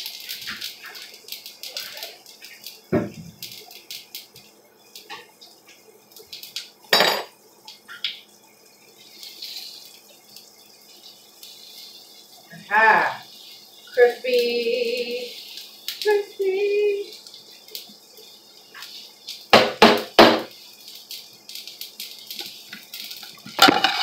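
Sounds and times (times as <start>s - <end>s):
faint hiss: 0.0s - 24.0s
dishes and utensils clinking: 6.9s - 7.3s, 23.4s - 24.0s.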